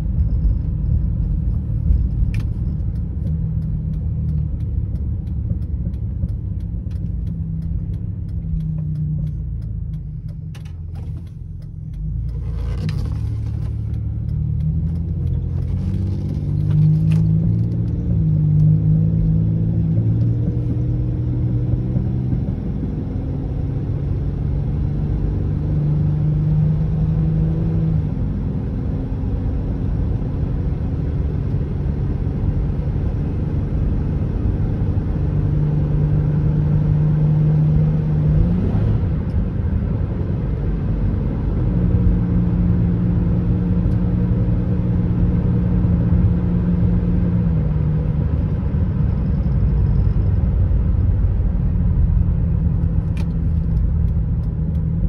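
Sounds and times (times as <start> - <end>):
tyre and road rumble: 0.0 - 22.6
car engine humming: 0.0 - 55.0.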